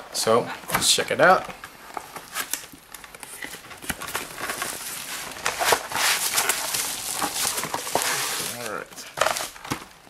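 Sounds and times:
bubble wrap crinkling: 2.2 - 10.0.

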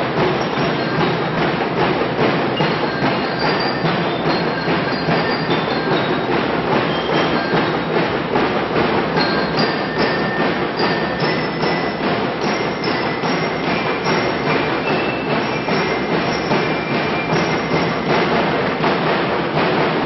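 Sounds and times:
marching drums: 0.0 - 20.0
bell lyre melody: 2.6 - 7.8, 9.2 - 18.3.

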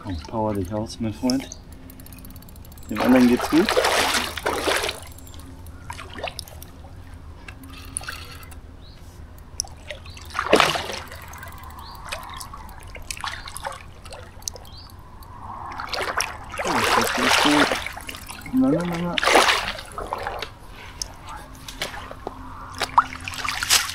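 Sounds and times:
water dripping: 0.0 - 8.6, 9.3 - 23.9
fish splashing in water: 2.8 - 7.0, 9.4 - 23.9.

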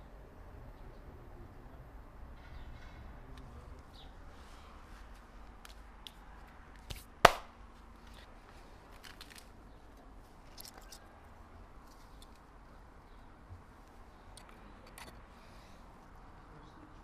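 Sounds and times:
sharp knock: 7.3 - 7.5.

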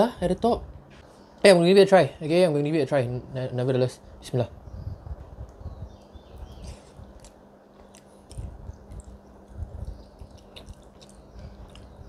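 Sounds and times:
faint steady hum: 0.0 - 12.0
person chewing food: 6.4 - 12.0.

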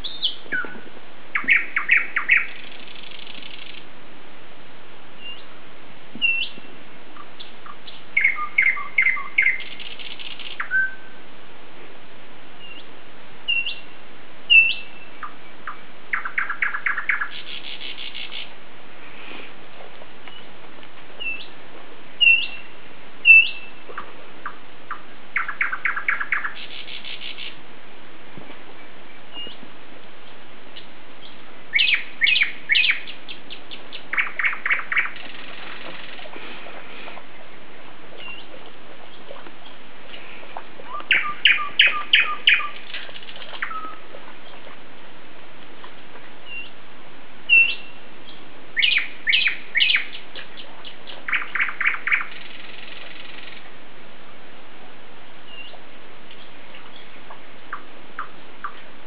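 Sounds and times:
birds chirping and trilling: 0.0 - 3.9, 5.2 - 5.5, 6.2 - 11.2, 12.6 - 19.6, 21.2 - 27.6, 28.6 - 44.8, 46.3 - 46.8, 47.5 - 53.8, 55.4 - 59.0
steady hiss: 0.0 - 59.0.

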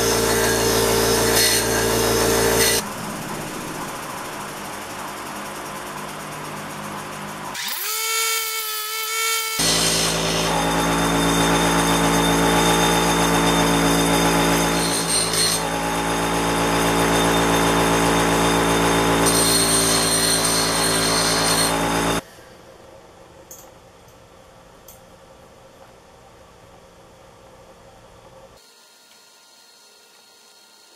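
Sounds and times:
bench grinder motor hum: 0.0 - 2.8, 7.6 - 22.2
steel file grinding on wheel: 0.0 - 2.8, 9.1 - 22.2.

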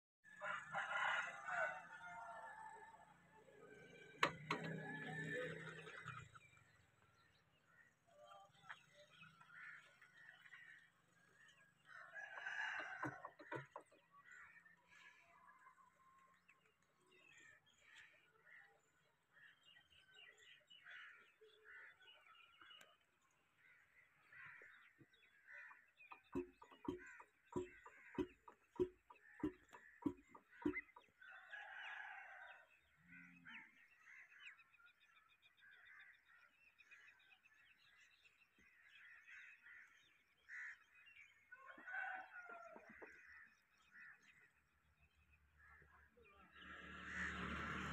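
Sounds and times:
poultry calls: 23.7 - 34.5, 45.6 - 47.9
sharp metallic knocks: 26.1 - 31.1.

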